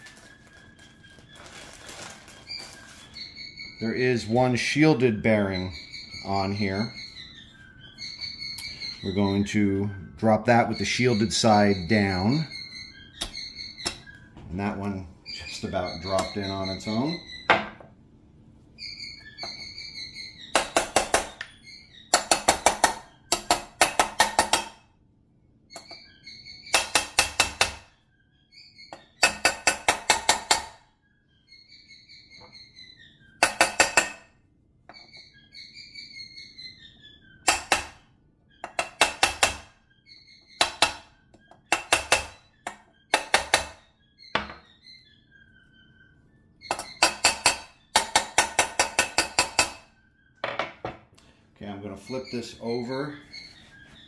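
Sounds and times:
hammer tapping metal: 20.5s - 21.5s, 22.1s - 24.8s, 26.7s - 27.8s, 33.4s - 34.2s, 37.5s - 38.0s, 38.7s - 39.7s, 40.6s - 41.0s, 41.7s - 43.8s, 46.7s - 49.8s.

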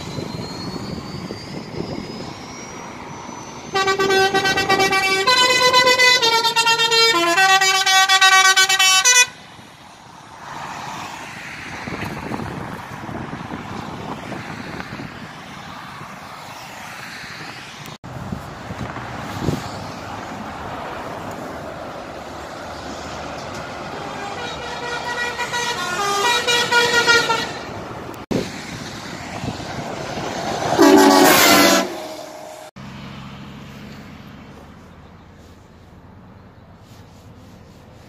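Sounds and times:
wind noise: 0.0s - 3.5s, 11.6s - 16.4s, 17.4s - 20.1s, 28.3s - 31.6s
passing traffic: 0.0s - 38.0s
truck air horns: 3.6s - 9.4s, 23.8s - 27.8s, 30.6s - 32.7s.

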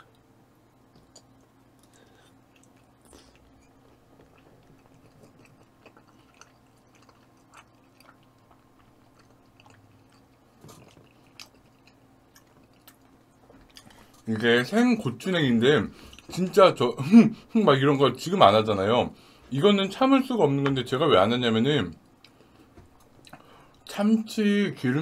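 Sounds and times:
wet chewing: 0.9s - 14.3s.

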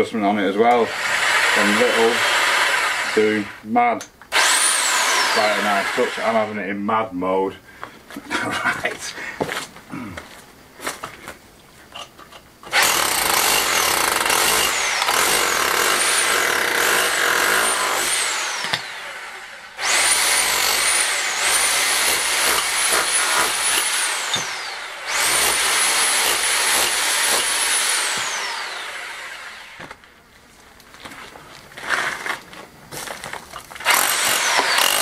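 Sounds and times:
demolition hammer chipping stone: 12.7s - 18.9s, 19.8s - 28.5s, 33.8s - 35.0s.

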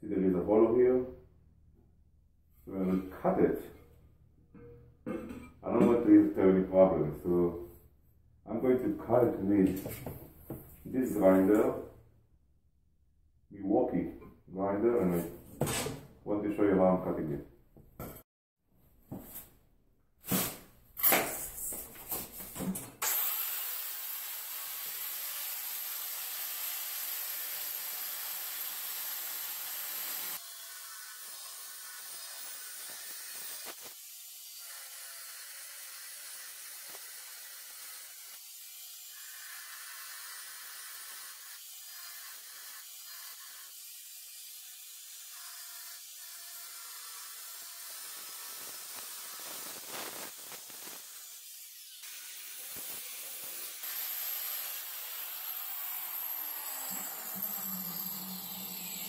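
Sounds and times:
angle grinder cutting tile: 23.0s - 59.0s
steady hiss: 49.4s - 51.1s.

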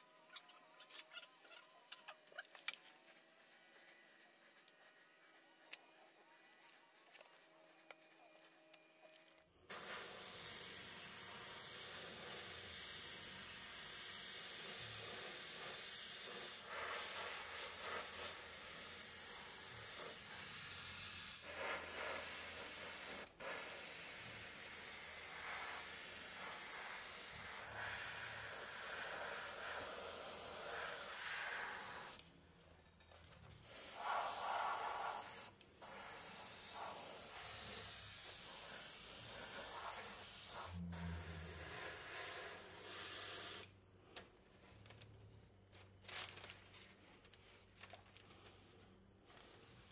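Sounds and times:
airbrush hissing: 9.7s - 32.3s, 33.6s - 43.8s.

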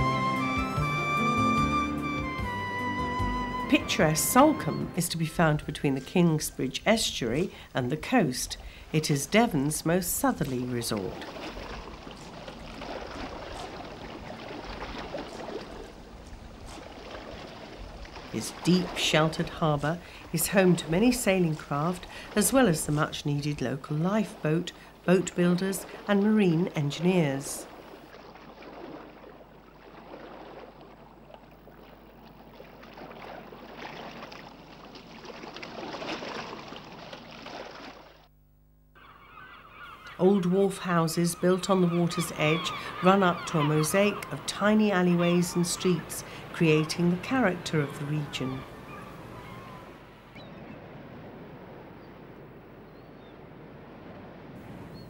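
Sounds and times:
water wash: 3.7s - 38.3s, 41.3s - 50.1s.

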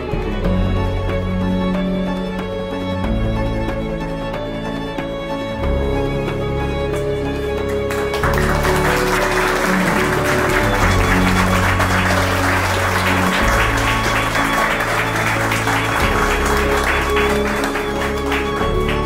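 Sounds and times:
instrumental music with bass notes: 0.0s - 19.0s
crowd applauding: 6.9s - 19.0s.

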